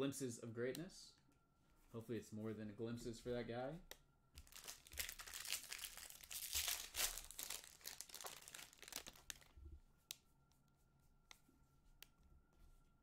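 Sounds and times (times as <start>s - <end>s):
foil wrapper crinkling: 4.4s - 9.6s.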